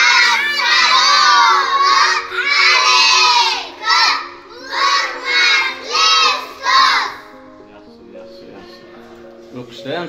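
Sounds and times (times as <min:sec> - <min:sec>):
children chanting in unison: 0:00.0 - 0:07.4
quiet backing tune: 0:00.0 - 0:10.0.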